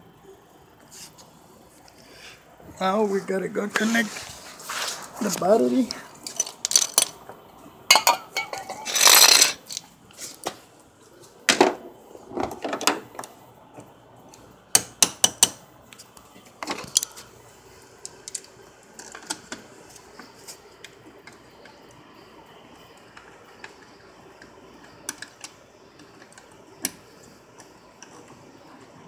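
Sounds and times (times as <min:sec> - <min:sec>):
hand tools clinking: 0:06.2 - 0:07.2, 0:07.9 - 0:09.8.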